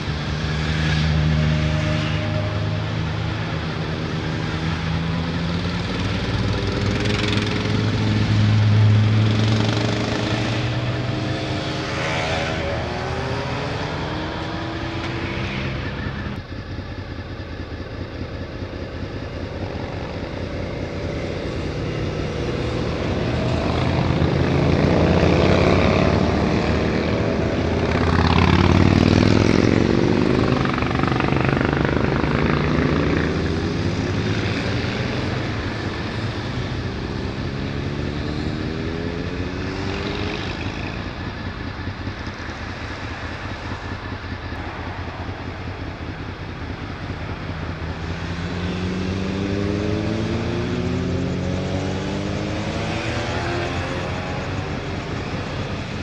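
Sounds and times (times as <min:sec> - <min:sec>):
motorcycles riding past: 0:00.0 - 0:16.5, 0:18.6 - 0:56.0.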